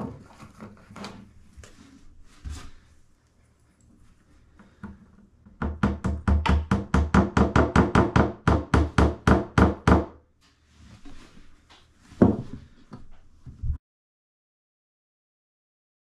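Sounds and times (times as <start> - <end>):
hammer tapping wooden pegs: 5.5 - 10.1.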